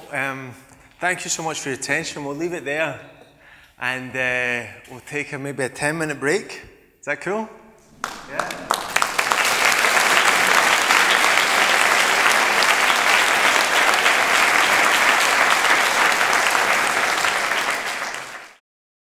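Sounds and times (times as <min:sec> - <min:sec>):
audience applauding: 0:07.8 - 0:18.6.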